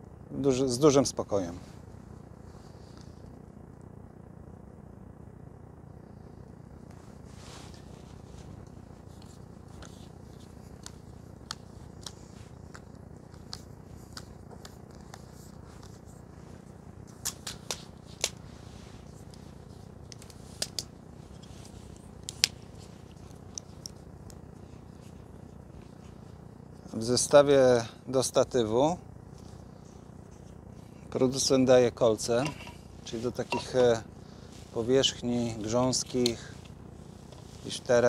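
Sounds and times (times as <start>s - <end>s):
tripod clicks and taps: 20.1s - 20.9s.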